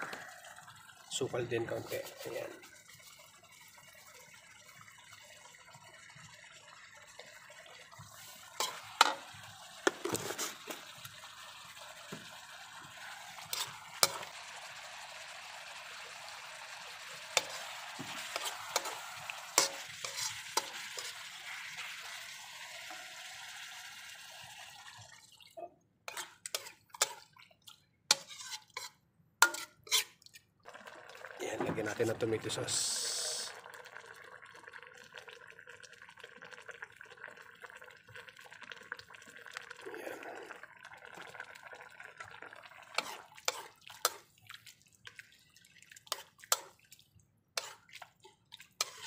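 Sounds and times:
stew sizzling in a wok: 0:06.2 - 0:25.0, 0:32.6 - 0:33.7, 0:42.3 - 0:44.3, 0:46.1 - 0:46.8, 0:47.6 - 0:48.2, 0:48.8 - 0:49.0
metal spoon scraping pan: 0:08.3 - 0:09.3, 0:13.0 - 0:14.3, 0:17.3 - 0:21.6, 0:26.1 - 0:27.3, 0:28.1 - 0:30.2, 0:42.9 - 0:44.2, 0:47.6 - 0:48.2, 0:48.8 - 0:49.0.

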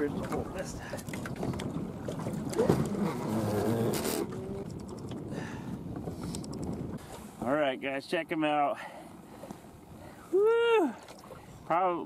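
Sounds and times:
wind on microphone: 0:00.0 - 0:07.5.

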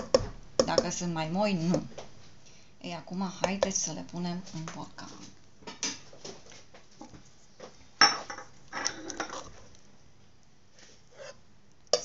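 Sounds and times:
metal spoon scraping a pot: 0:08.7 - 0:09.6, 0:11.1 - 0:11.4.

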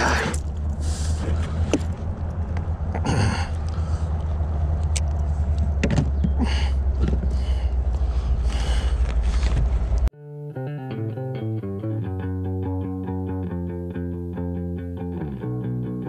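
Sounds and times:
scraping and rustling in kayak: 0:00.0 - 0:02.1, 0:09.0 - 0:10.0
music with bass guitar: 0:10.2 - 0:16.0.

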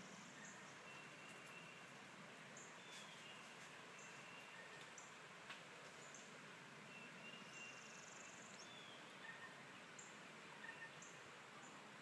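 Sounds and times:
songbird chirps and whistles: 0:02.6 - 0:05.1, 0:06.9 - 0:09.6, 0:10.5 - 0:11.2.

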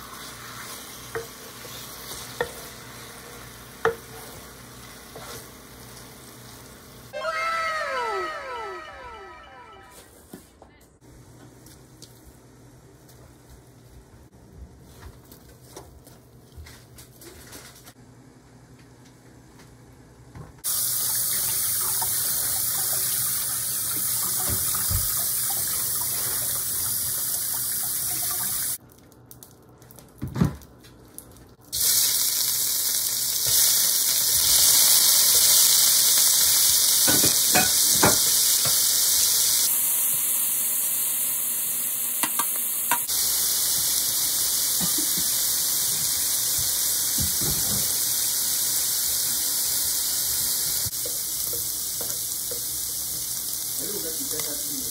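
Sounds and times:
shrimp sizzling in hot oil: 0:00.0 - 0:07.1, 0:20.6 - 0:28.8, 0:31.7 - 0:54.9
tap water running into colander: 0:20.6 - 0:28.8, 0:42.1 - 0:48.1.

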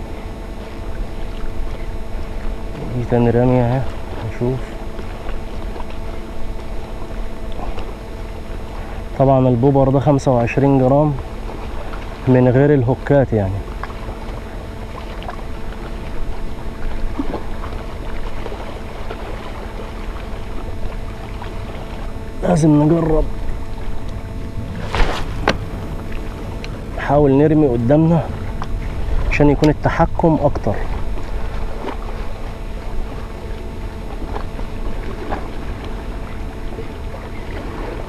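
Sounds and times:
sea water washing on rocks: 0:13.5 - 0:38.0
faint ticks: 0:13.6 - 0:19.2, 0:23.4 - 0:24.3
wind noise on microphone: 0:23.2 - 0:38.0.

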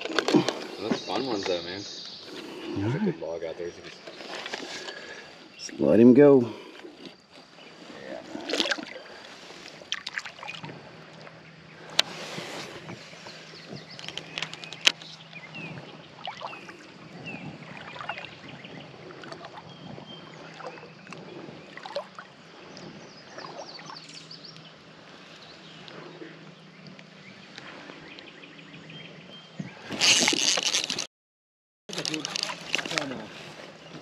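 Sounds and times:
water sloshing around wader: 0:06.5 - 0:31.1, 0:31.9 - 0:34.0.

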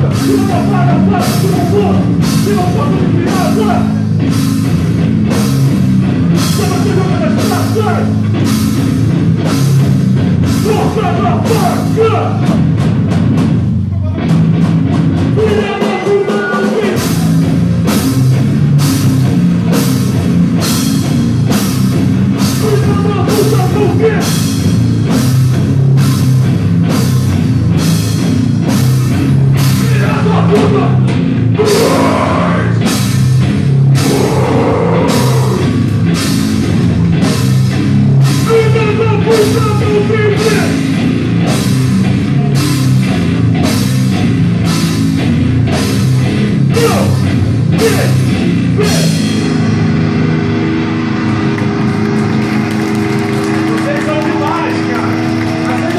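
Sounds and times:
drum kit: 0:00.0 - 0:55.9
electric guitars and bass: 0:00.0 - 0:55.9
vocalist singing: 0:29.8 - 0:31.0, 0:31.6 - 0:32.8, 0:34.0 - 0:35.8.

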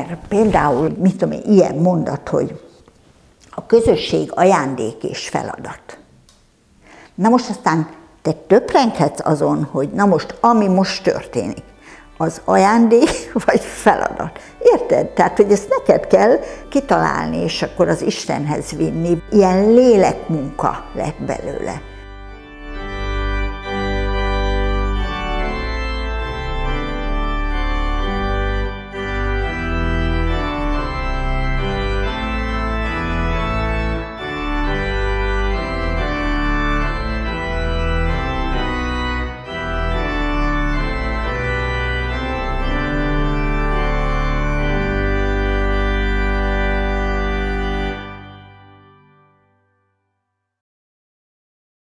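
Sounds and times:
organ playing hymn chords: 0:09.0 - 0:49.9.

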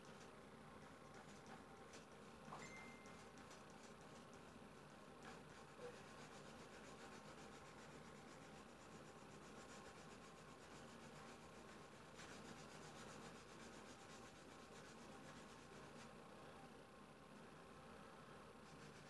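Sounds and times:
drawing stick rubbing on paper: 0:05.2 - 0:16.1, 0:18.6 - 0:19.0.

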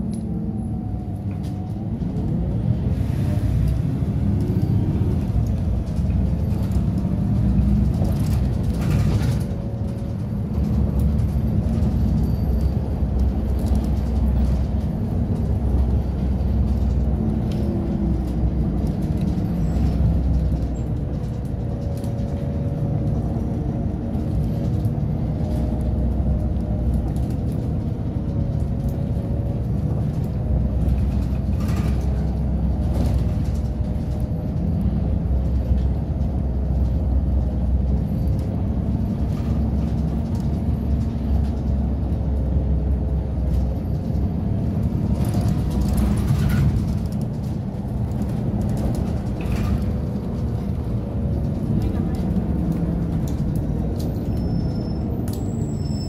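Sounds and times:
bus engine and road rumble: 0:00.0 - 0:56.0
bus whine rising in pitch: 0:49.6 - 0:56.0.

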